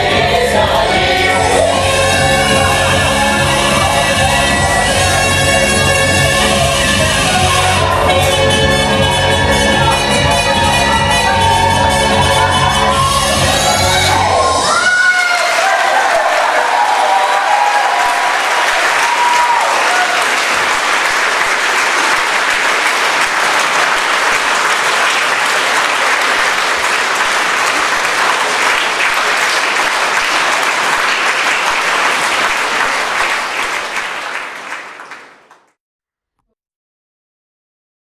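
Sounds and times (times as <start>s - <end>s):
audience applauding: 9.4s - 35.8s.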